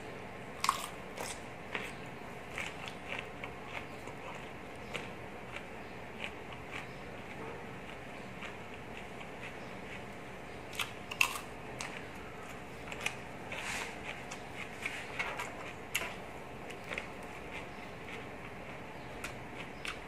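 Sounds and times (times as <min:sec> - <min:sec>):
crunching and chewing cucumber: 0:00.6 - 0:20.0.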